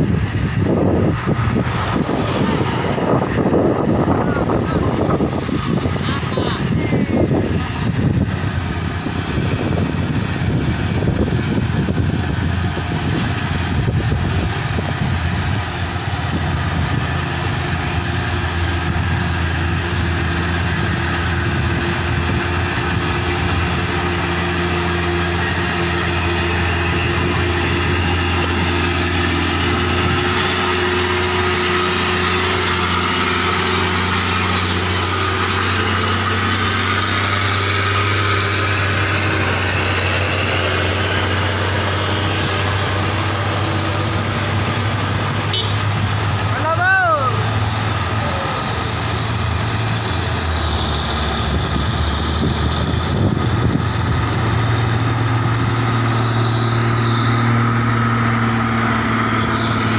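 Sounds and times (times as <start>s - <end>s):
diesel truck engines: 0.0s - 59.9s
tyre and road noise: 0.0s - 59.9s.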